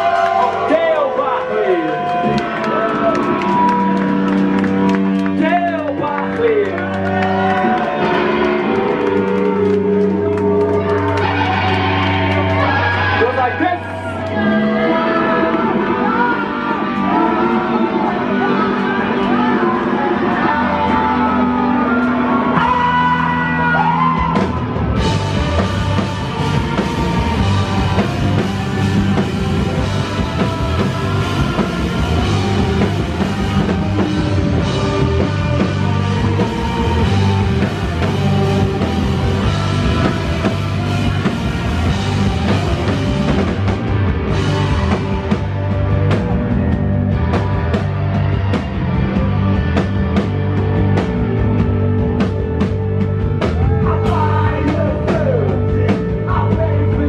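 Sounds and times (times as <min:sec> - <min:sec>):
bass guitar: 0:00.0 - 0:57.0
distorted electric guitars: 0:00.0 - 0:57.0.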